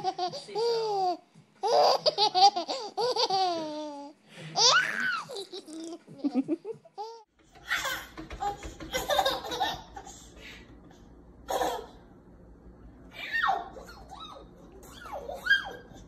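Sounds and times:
baby giggling: 0:00.0 - 0:08.1, 0:08.9 - 0:10.3, 0:11.5 - 0:12.0, 0:13.4 - 0:16.0.

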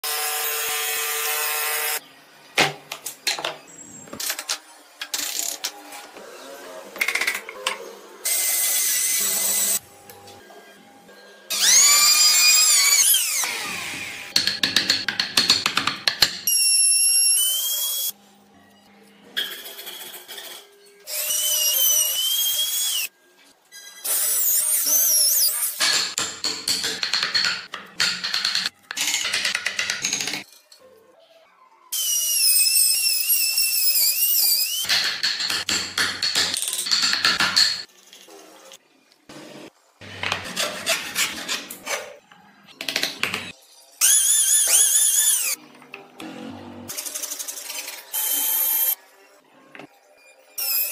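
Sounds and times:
hand tools scraping: 0:40.1 - 0:42.2.

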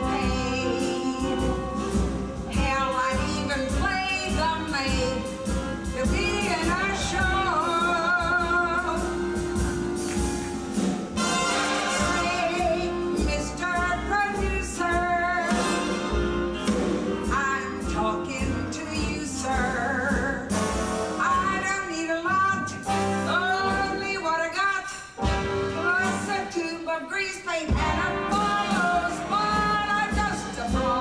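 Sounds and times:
woman singing show tune: 0:00.0 - 0:01.9, 0:02.5 - 0:05.3, 0:06.0 - 0:09.2, 0:17.3 - 0:20.5
instrumental accompaniment: 0:00.0 - 0:24.5, 0:25.2 - 0:26.8, 0:27.7 - 0:31.0.

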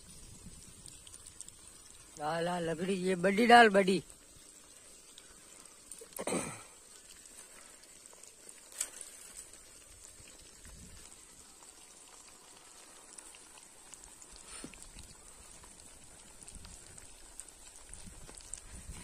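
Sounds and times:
dry branches rustling: 0:00.0 - 0:19.0
faint high hiss: 0:00.0 - 0:19.0
branch snapping: 0:08.7 - 0:09.4.

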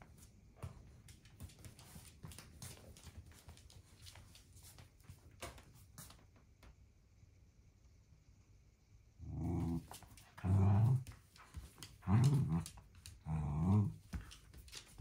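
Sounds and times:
dog claws clicking on wood floor: 0:09.7 - 0:15.0.

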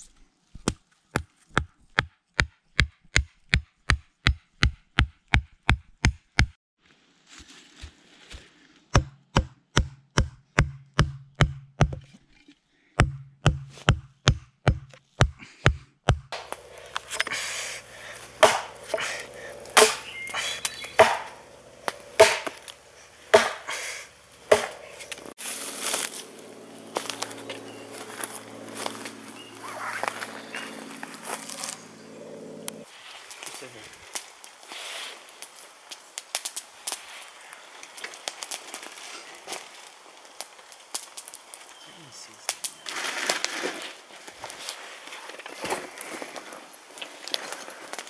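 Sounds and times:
hatchet chopping log: 0:00.6 - 0:06.6, 0:08.9 - 0:12.1, 0:13.0 - 0:25.2
campfire crackling and popping: 0:16.3 - 0:26.3, 0:33.2 - 0:41.7.

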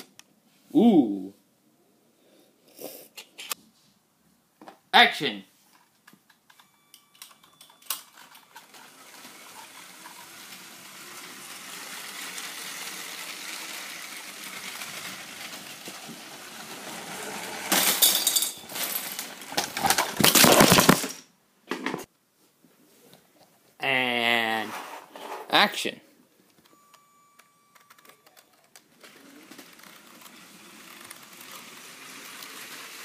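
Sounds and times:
toy train motor whirring: 0:07.9 - 0:17.8, 0:29.0 - 0:33.0
plastic bricks clattering: 0:12.2 - 0:21.2.

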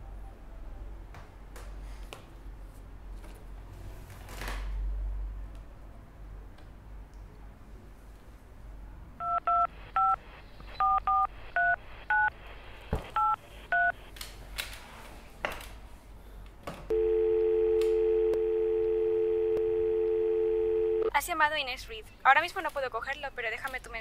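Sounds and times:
telephone keypad beeps: 0:16.9 - 0:21.1
steady telephone line tone: 0:16.9 - 0:21.2.

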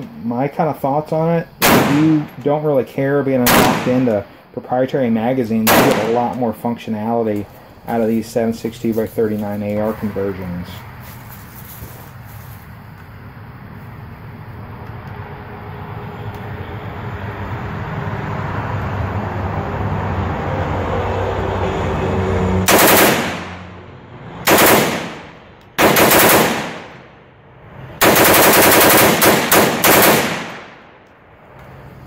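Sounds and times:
gunshot echo: 0:01.6 - 0:02.4, 0:03.5 - 0:04.2, 0:05.7 - 0:06.4, 0:22.7 - 0:23.7, 0:24.5 - 0:27.1, 0:28.0 - 0:30.9
rifle firing strings of shots: 0:01.6 - 0:02.6, 0:03.4 - 0:04.4, 0:05.5 - 0:06.8, 0:22.7 - 0:23.7, 0:24.4 - 0:27.2, 0:28.0 - 0:31.8.

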